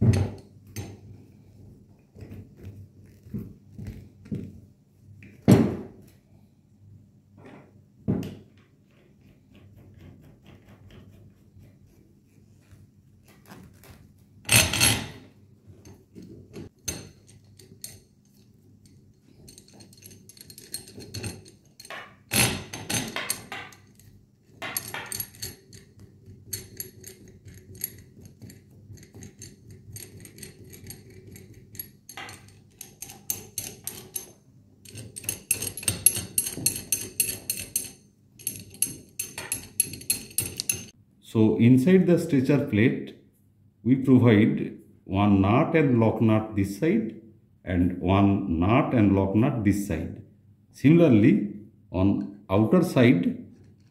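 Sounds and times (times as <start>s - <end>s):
metal clinking and knocks: 15.8s - 41.0s
metallic clicks and ringing: 29.0s - 41.0s.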